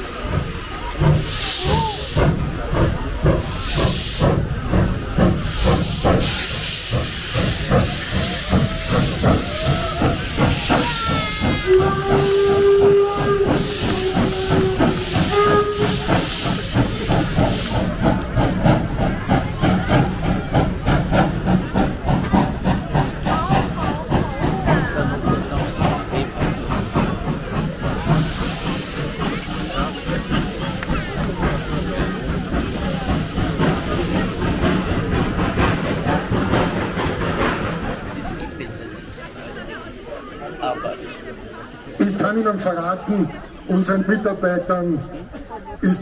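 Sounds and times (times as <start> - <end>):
locomotive exhaust beating: 0.0 - 40.0
steam hissing: 0.0 - 42.4
steam whistle blasts: 11.1 - 16.2.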